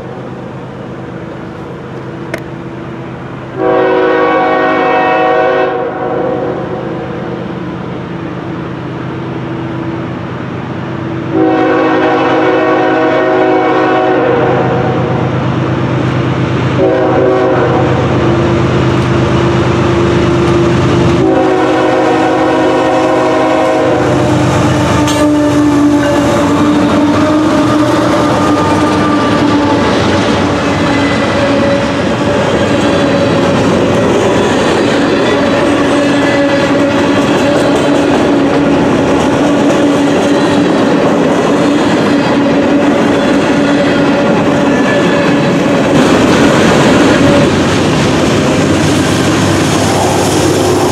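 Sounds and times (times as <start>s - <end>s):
locomotive air horn blasts: 3.6s - 6.6s, 11.3s - 15.0s, 16.8s - 18.1s, 21.2s - 33.5s
locomotive passing: 6.4s - 50.9s
train wheels clickety-clack: 22.1s - 50.9s.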